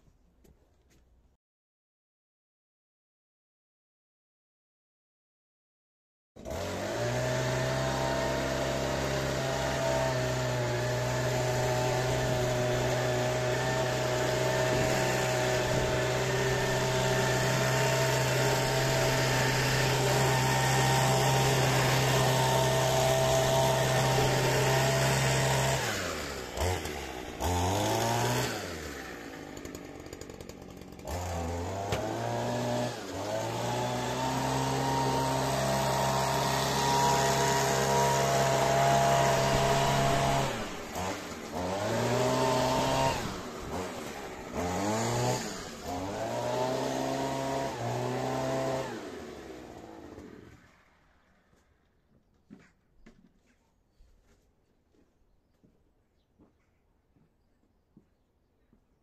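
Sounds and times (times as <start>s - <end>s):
leaf blower engine running: 6.4s - 51.7s.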